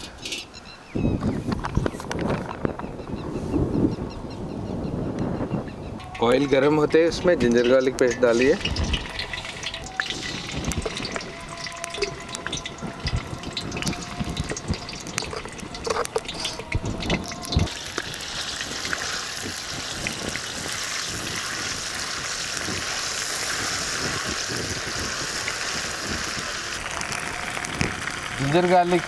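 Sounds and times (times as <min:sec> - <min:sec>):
paste sizzling in hot oil: 0:08.0 - 0:29.0.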